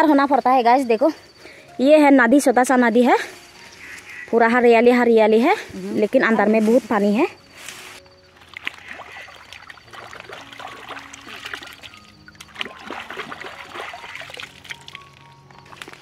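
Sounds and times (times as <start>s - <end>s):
water splashing and trickling: 5.2s - 16.0s.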